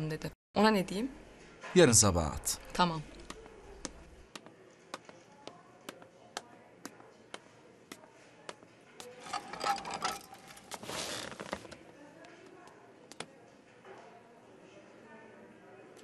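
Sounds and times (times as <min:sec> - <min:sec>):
person sitting in office chair: 0:09.2 - 0:11.8.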